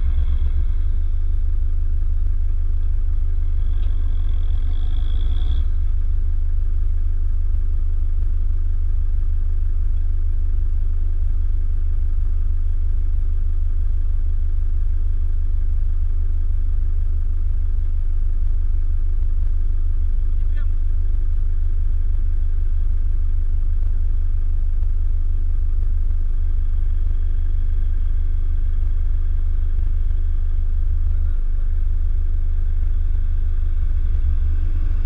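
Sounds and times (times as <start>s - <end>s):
engine revving with wheels spinning: 0.0s - 1.1s, 3.6s - 5.9s
vehicle idling rumble: 0.0s - 35.0s.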